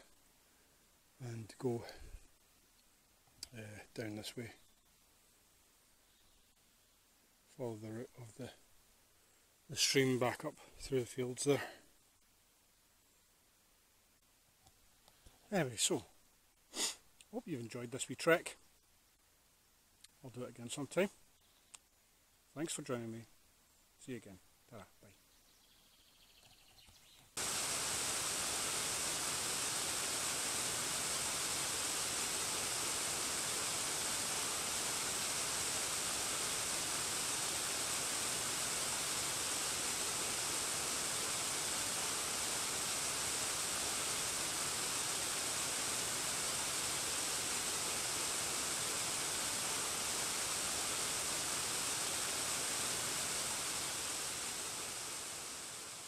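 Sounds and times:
waterfall rushing: 0:27.4 - 0:56.0.

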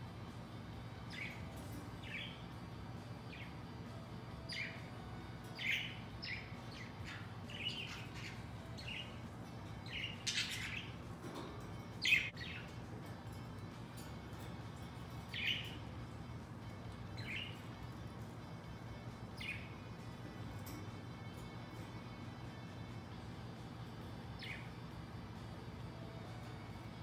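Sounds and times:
budgerigars chirping: 0:05.6 - 0:11.0, 0:19.4 - 0:19.8.

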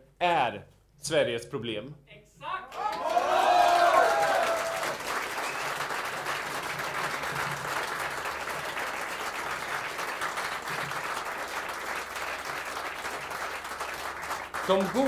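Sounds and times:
audience applauding: 0:02.7 - 0:15.0.

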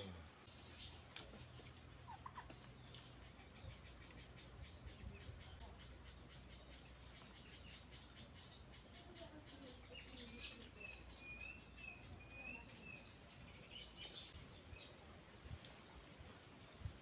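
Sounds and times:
high bird chirping: 0:00.5 - 0:14.9.

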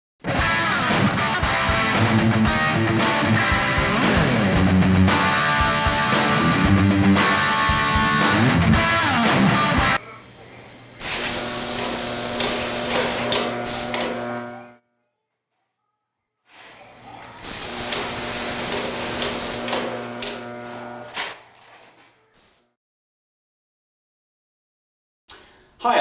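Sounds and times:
guitar music: 0:00.3 - 0:10.0
paint sprayer hissing: 0:11.0 - 0:14.7, 0:16.6 - 0:21.4, 0:22.4 - 0:22.7.

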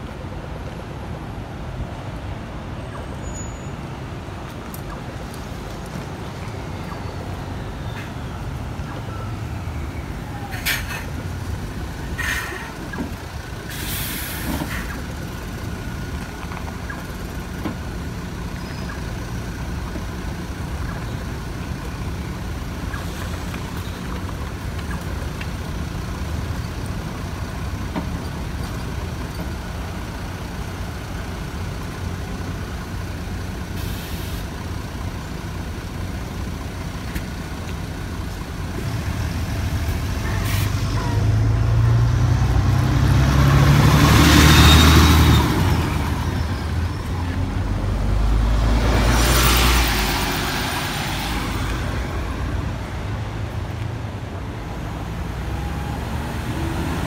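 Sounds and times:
bus engine rumble: 0:00.0 - 0:57.0
compressed air hisses: 0:13.7 - 0:14.9, 0:33.8 - 0:34.4.

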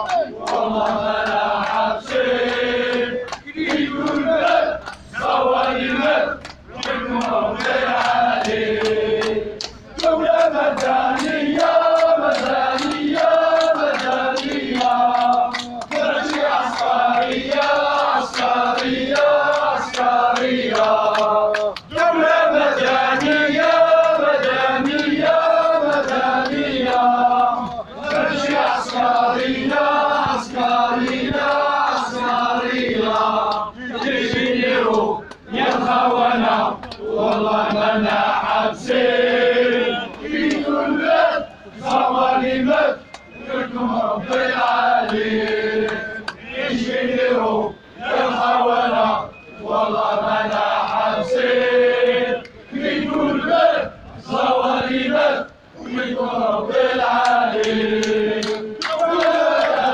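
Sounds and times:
handclaps: 0:00.0 - 0:32.4, 0:33.0 - 0:38.6, 0:39.7 - 0:40.7, 0:41.8 - 0:42.1, 0:43.1 - 0:43.3, 0:44.2 - 0:46.4, 0:57.1 - 0:59.9
crowd chanting: 0:00.0 - 0:59.9.

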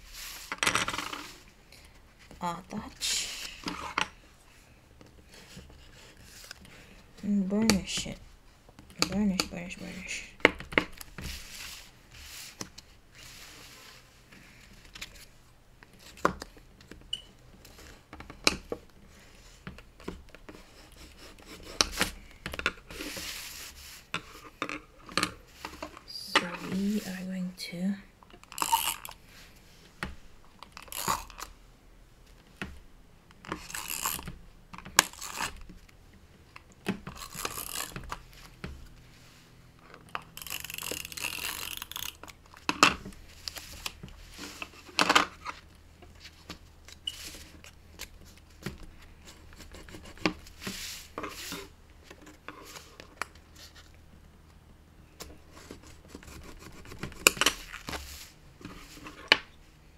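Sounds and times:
paper rustling and rubbing: 0:00.0 - 0:01.5, 0:11.1 - 0:15.3, 0:22.8 - 0:24.5, 0:49.1 - 0:53.9, 0:55.4 - 0:59.2
rasping paper noise: 0:55.5 - 0:59.0.

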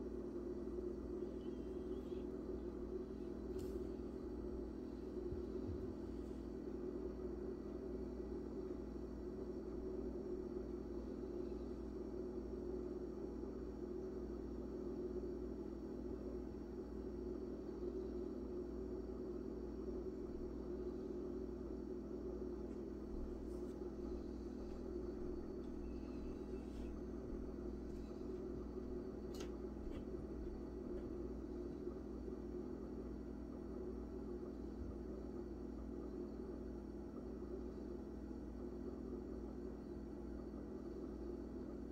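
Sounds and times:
low hum and rumble of room noise: 0:00.0 - 0:41.9.

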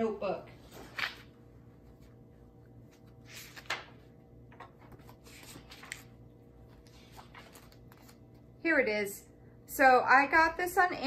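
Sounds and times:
notebook pages rustling: 0:02.8 - 0:08.3.

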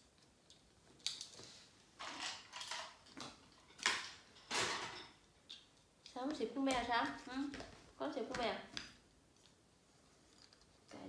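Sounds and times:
plastic toy pieces clattering: 0:02.0 - 0:05.0.

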